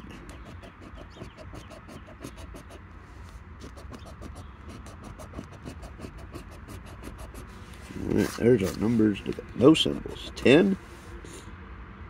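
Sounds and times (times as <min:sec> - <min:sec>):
coin scratching a ticket: 0:00.0 - 0:02.8, 0:03.6 - 0:10.7.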